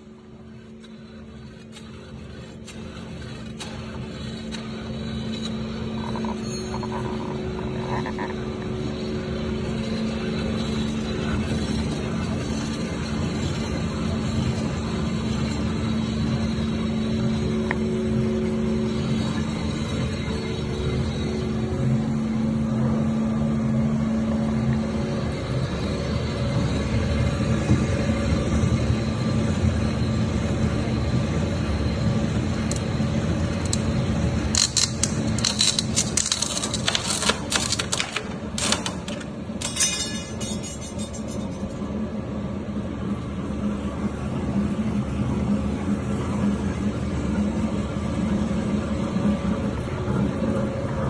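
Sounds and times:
beading machine humming: 0.0s - 37.7s
sharp metallic clicking and scraping: 33.6s - 41.8s.

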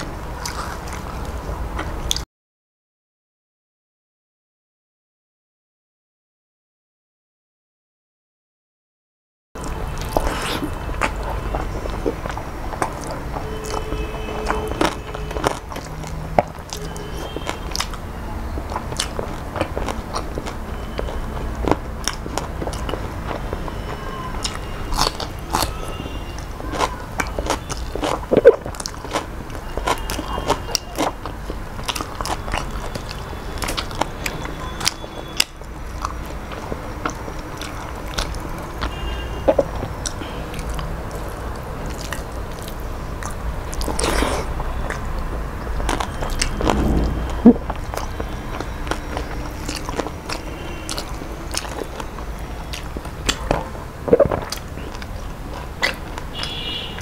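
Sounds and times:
person chewing food: 0.0s - 2.2s, 9.6s - 46.9s, 47.9s - 57.0s
wet mouth clicks and smacks: 52.7s - 56.5s.

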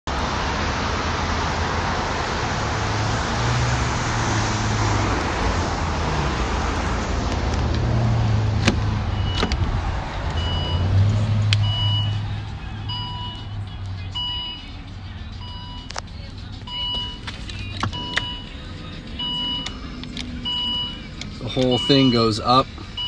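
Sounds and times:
vehicle hum: 0.1s - 23.0s
car door clicks: 8.5s - 9.7s, 16.8s - 18.4s
warning chime: 20.5s - 22.6s.

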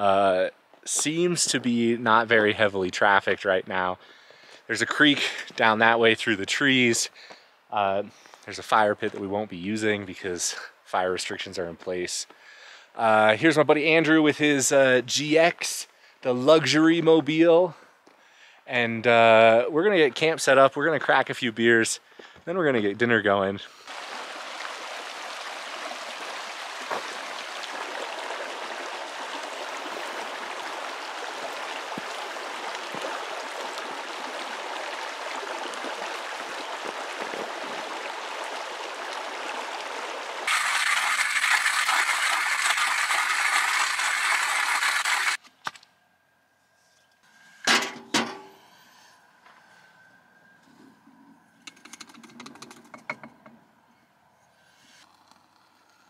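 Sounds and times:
creek running over rocks: 22.6s - 45.4s.

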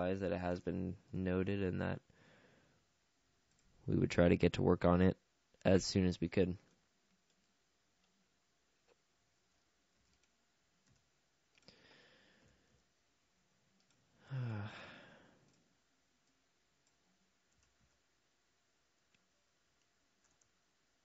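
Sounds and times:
man breathing in: 2.1s - 2.8s, 11.6s - 12.8s, 14.2s - 15.5s
man sighing: 14.2s - 15.5s
faint computer mouse clicks: 19.1s - 20.5s.

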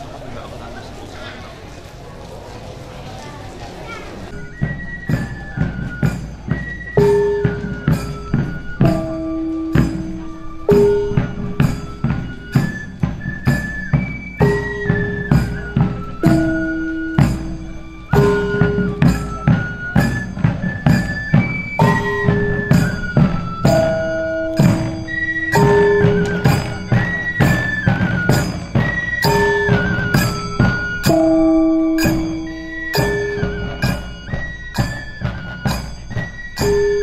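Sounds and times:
barrel drums marching beat: 4.3s - 37.0s
flute melody: 4.3s - 37.0s
small gongs struck: 29.3s - 34.1s.

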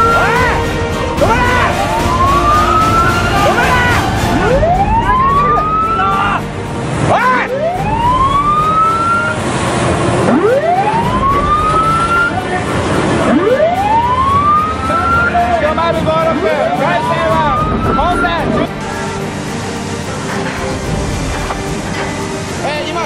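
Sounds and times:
boat siren wailing: 0.0s - 22.6s
churning sea: 0.0s - 23.0s
wind rushing: 17.0s - 22.7s.

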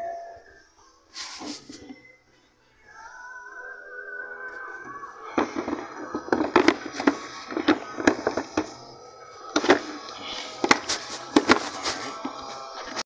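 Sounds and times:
plastic clicks and knocks: 5.3s - 8.8s, 9.5s - 12.4s.

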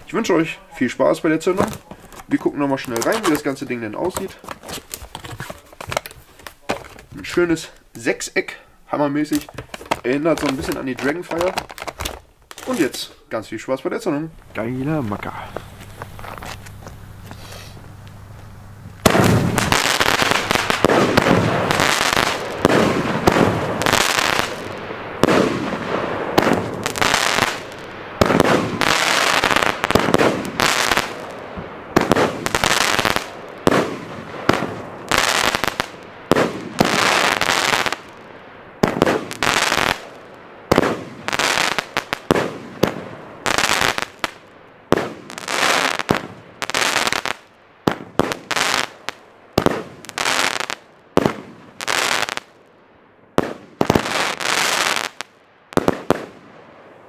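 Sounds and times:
firework launches and bursts: 19.0s - 52.5s, 53.4s - 56.4s.

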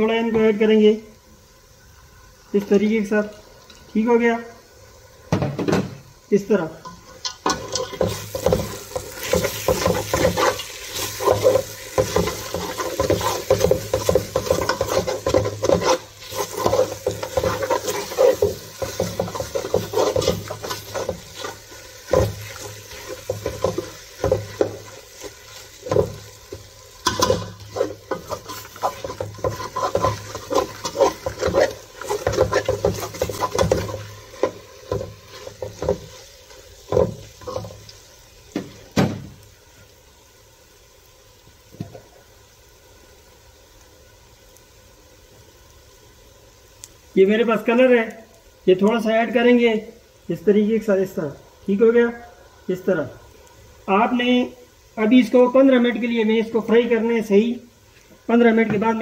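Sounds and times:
metal spoon scraping a pot: 6.9s - 25.3s, 27.0s - 36.2s.

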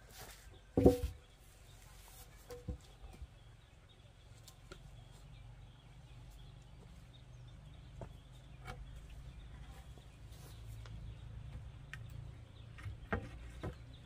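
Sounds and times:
wooden logs knocking: 0.7s - 1.2s, 11.5s - 14.0s.

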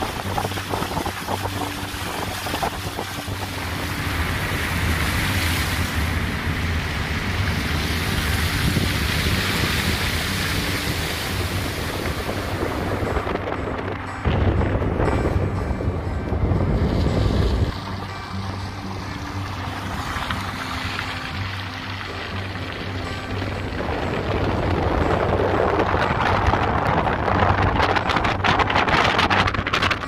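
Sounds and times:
water spraying off tyres: 0.0s - 14.4s, 16.8s - 30.0s
wind buffeting microphone: 0.0s - 21.4s, 22.1s - 30.0s.

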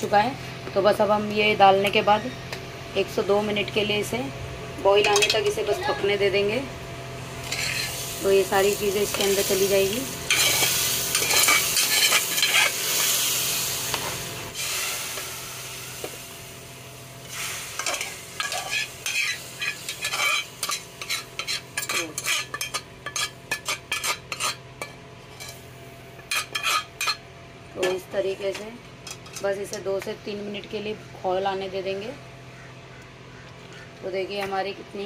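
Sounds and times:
food sizzling in hot milk: 7.1s - 24.6s.

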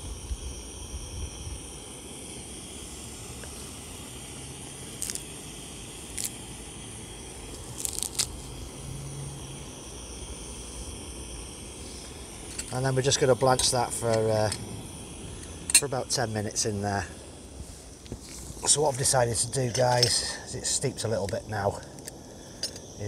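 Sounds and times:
steady background noise: 0.0s - 23.0s
plant stems crackling rustles: 7.6s - 8.3s.

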